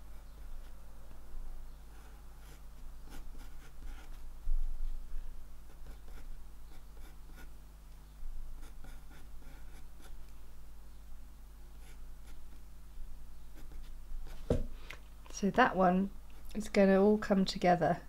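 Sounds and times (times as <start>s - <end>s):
pencil scratching on paper: 2.0s - 4.2s, 5.7s - 7.5s, 8.6s - 10.2s, 13.5s - 14.0s.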